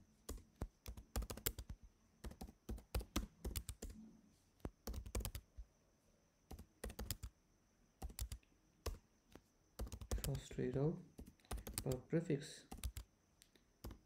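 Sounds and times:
computer keyboard typing: 0.2 - 4.0, 4.7 - 5.5, 6.5 - 7.3, 8.0 - 9.0, 9.8 - 12.1, 12.7 - 13.1, 13.8 - 14.0.

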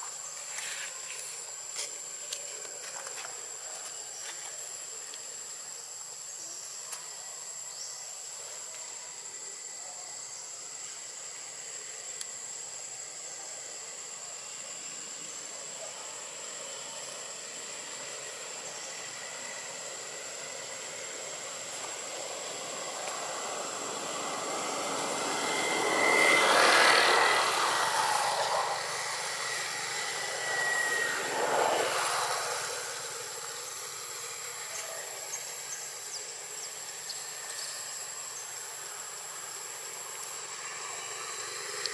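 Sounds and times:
vehicle passing by: 22.0 - 34.4.

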